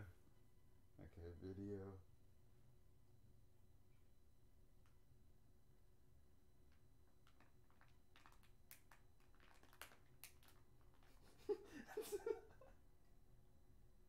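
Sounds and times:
small objects clicking and tapping: 6.7 - 11.2.

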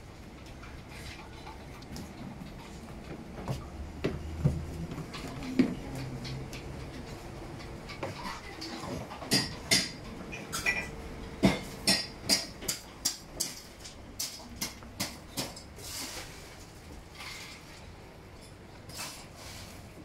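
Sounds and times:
dishes and cutlery clinking: 7.0 - 15.7.

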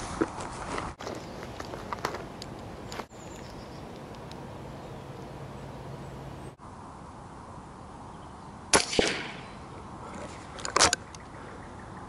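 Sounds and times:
rifle shot crack: 8.7 - 9.5.

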